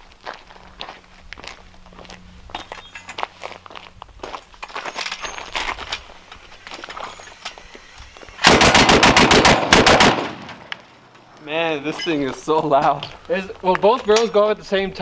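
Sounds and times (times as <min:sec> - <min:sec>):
rapid burst of gunfire: 0:08.4 - 0:10.5.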